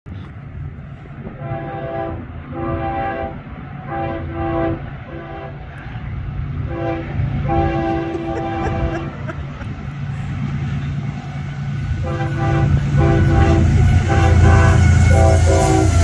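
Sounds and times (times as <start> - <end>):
low rumble of train: 0.0 - 16.0
locomotive air horn blasts: 1.3 - 6.0, 6.6 - 9.3, 11.8 - 16.0.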